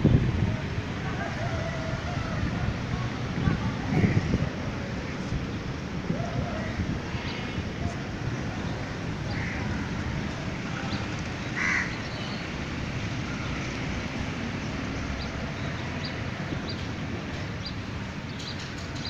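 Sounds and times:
crow cawing: 0:09.3 - 0:09.7, 0:11.6 - 0:12.0.

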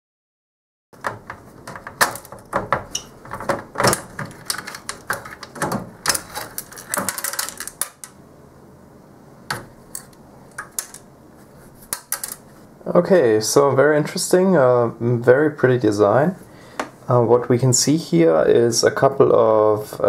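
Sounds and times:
sheet metal clattering and knocking: 0:01.0 - 0:07.7.

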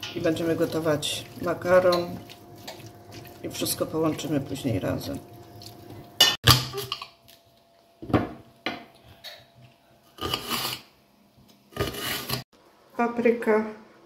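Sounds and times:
spatula scraping steel pot: 0:10.2 - 0:10.9, 0:11.8 - 0:12.4.

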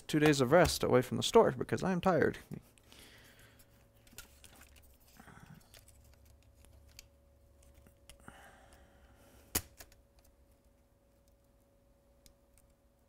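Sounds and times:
small clicks and handling noises: 0:03.6 - 0:08.8, 0:09.5 - 0:13.0.

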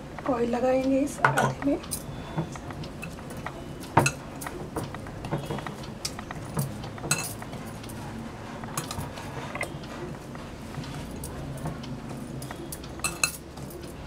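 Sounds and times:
bangles clinking on glass bowl: 0:06.4 - 0:07.4, 0:12.4 - 0:13.6.

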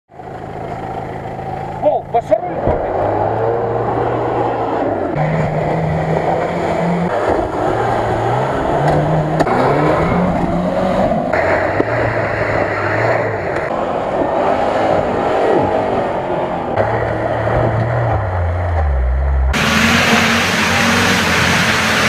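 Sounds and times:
off-road engines revving hard: 0:00.4 - 0:22.0.

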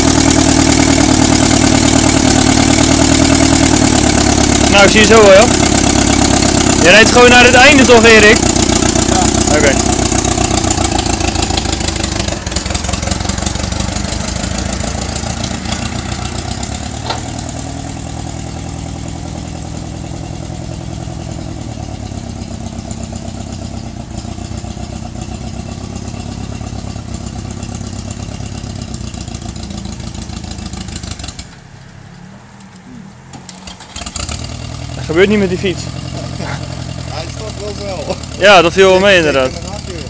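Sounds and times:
tractor engine running: 0:00.0 - 0:40.0.

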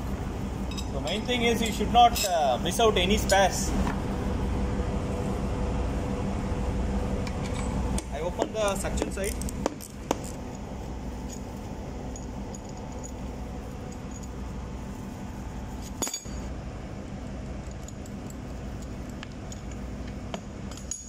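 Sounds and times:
low machinery hum: 0:00.0 - 0:21.0
metallic clinks of wrench: 0:20.7 - 0:21.0.

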